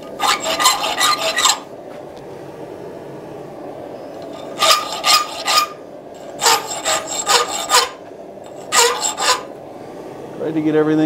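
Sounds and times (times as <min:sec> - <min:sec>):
hand file rasping on steel: 0:00.2 - 0:01.6, 0:04.4 - 0:05.8, 0:06.4 - 0:09.5.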